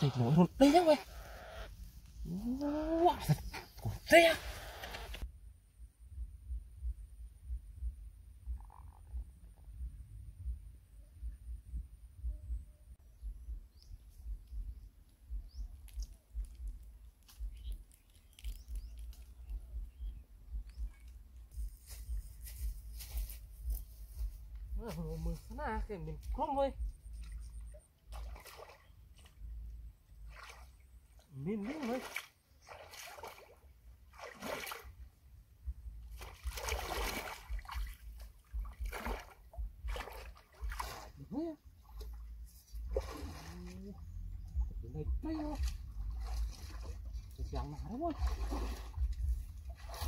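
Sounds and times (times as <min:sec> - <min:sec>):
faint bird chirps: 0:10.8 - 0:24.0
twigs and leaves crackling underfoot: 0:15.6 - 0:19.8, 0:20.6 - 0:25.6
feet splashing through water: 0:27.0 - 0:35.0, 0:36.0 - 0:44.1, 0:45.1 - 0:50.0
wind buffeting microphone: 0:48.2 - 0:50.0.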